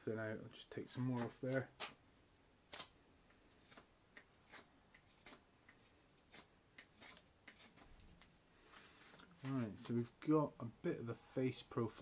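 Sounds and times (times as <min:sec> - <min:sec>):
knife scraping wood: 0:03.5 - 0:08.2.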